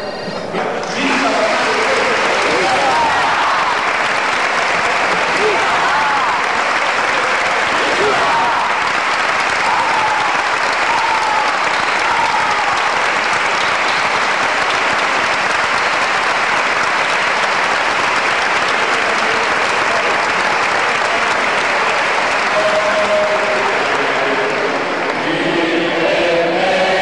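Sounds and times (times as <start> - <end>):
crowd applauding: 0.4 - 27.0
voices singing: 22.5 - 27.0.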